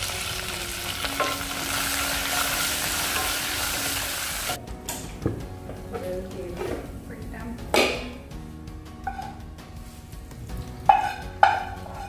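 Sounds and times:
leaves and garlic sizzling in oil: 0.0 - 4.6.

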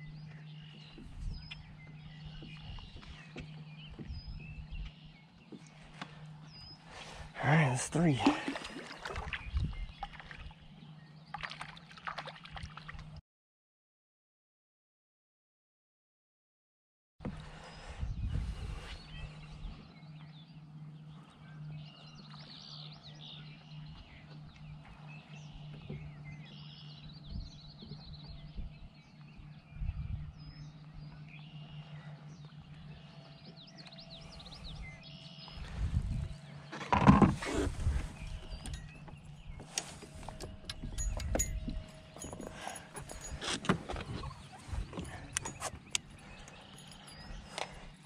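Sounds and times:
birds chirping: 0.0 - 12.2, 17.2 - 48.0.

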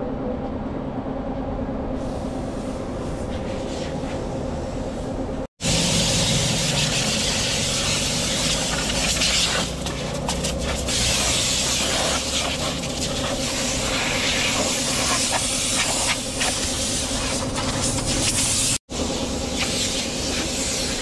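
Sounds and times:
air blow gun hissing: 5.6 - 18.8, 19.5 - 21.0.

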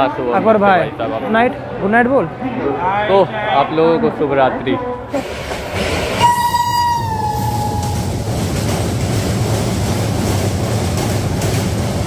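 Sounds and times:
train wheels rumbling on track: 5.1 - 12.0
train horn blast: 6.2 - 8.1.

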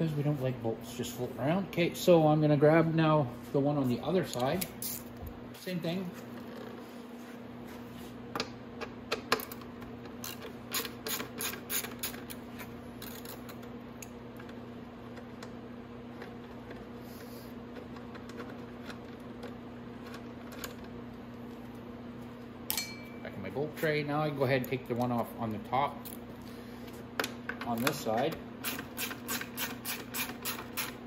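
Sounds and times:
steady low hum: 0.0 - 31.0
ratchet wrench clicking: 10.2 - 12.3.

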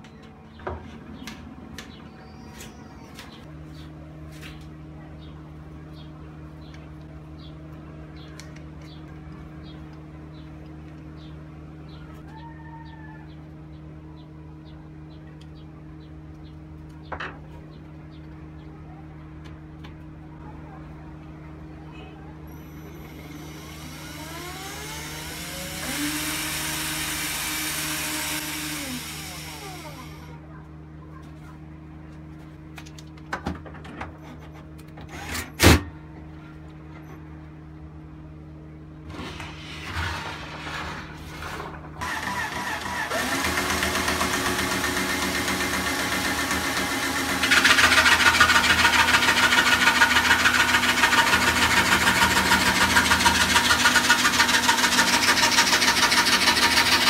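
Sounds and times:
cordless drill motor spinning: 23.0 - 30.3, 42.0 - 57.0
saw blade rasping plywood: 39.2 - 57.0.

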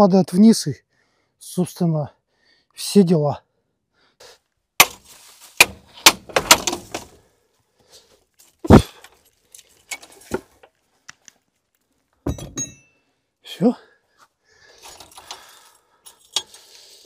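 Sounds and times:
hand tools clinking on metal nuts: 12.3 - 12.9, 14.8 - 16.8.

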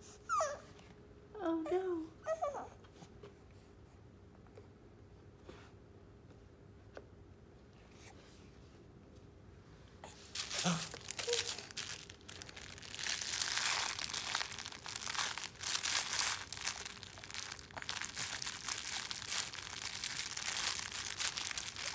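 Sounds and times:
cloth book crinkling: 10.2 - 21.9.

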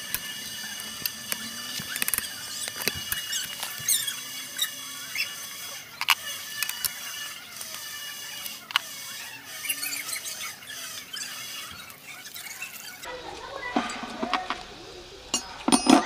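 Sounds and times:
high squeaky chirping: 0.0 - 16.0.

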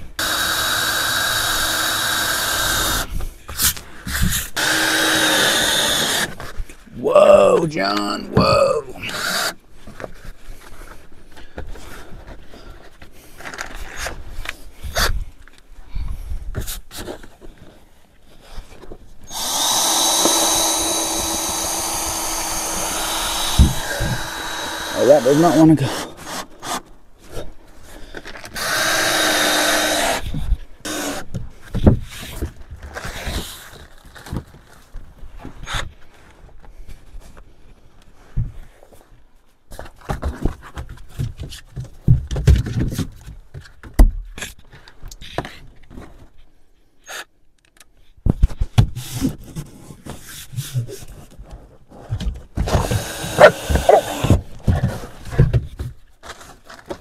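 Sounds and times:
power tool buzzing: 0.2 - 3.1, 4.6 - 6.3, 19.3 - 26.8, 28.6 - 30.2, 52.8 - 54.4.

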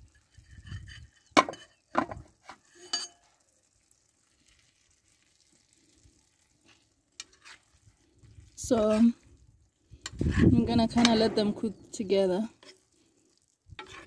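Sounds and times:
stirring in a pan: 0.0 - 14.0
metal spoon clinking: 2.7 - 3.3
beans sliding into frying pan: 5.5 - 8.0, 12.6 - 14.0.

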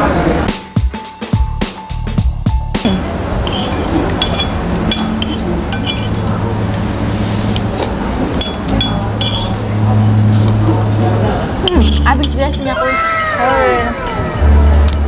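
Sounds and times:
music with steady beat: 0.5 - 3.0
cutlery clinking on plates: 2.9 - 6.3, 8.4 - 9.6.

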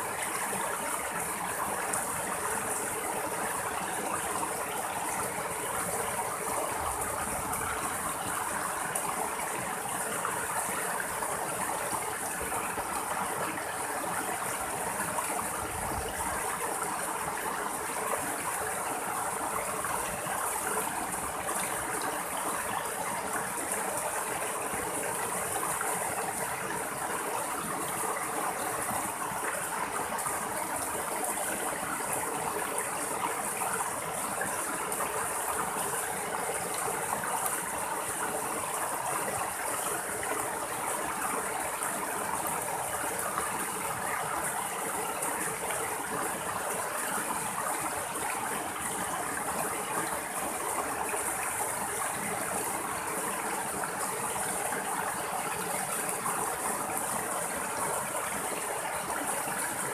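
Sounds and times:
stream splashing over rocks: 0.0 - 59.9.

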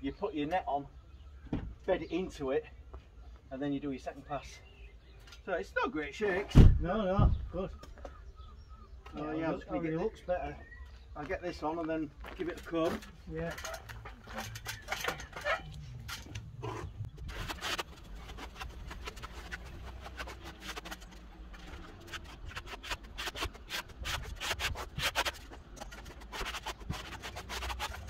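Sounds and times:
trowel scraping render on board: 13.4 - 28.0.

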